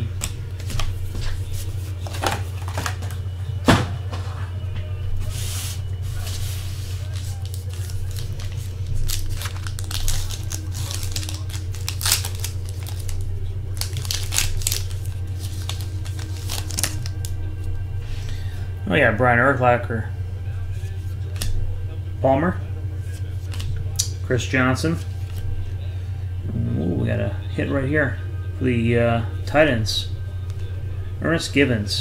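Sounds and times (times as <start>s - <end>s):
steady low hum: 0.0s - 32.0s
plastic wrappers crinkling and tearing: 1.7s - 3.2s, 6.2s - 17.4s.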